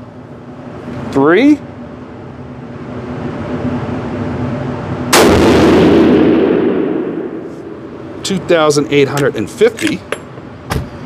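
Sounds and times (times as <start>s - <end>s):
steady low hum: 0.0s - 11.0s
rifle shot with rolling echo: 5.1s - 7.9s.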